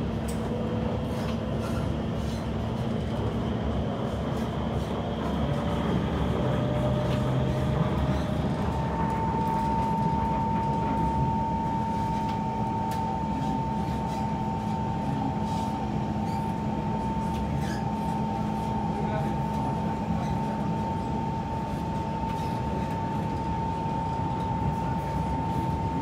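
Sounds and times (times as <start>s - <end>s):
train wheels and motors rumbling: 0.0s - 26.0s
traction motor whine: 3.4s - 14.6s.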